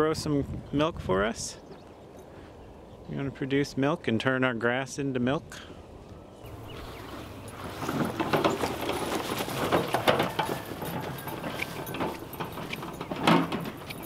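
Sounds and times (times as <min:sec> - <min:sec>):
wheelbarrow rattling over grass: 0:06.5 - 0:14.0.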